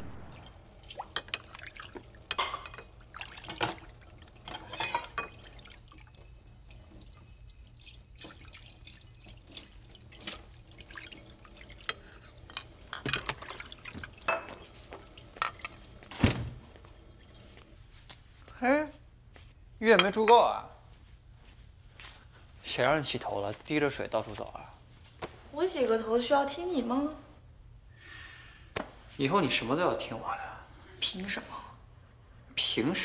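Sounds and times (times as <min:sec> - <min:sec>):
tap water splashing in sink: 0:12.6 - 0:17.0.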